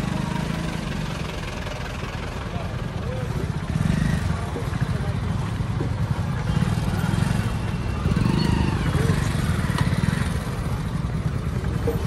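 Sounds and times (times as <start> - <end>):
motorcycle engine at low revs: 0.0 - 12.0.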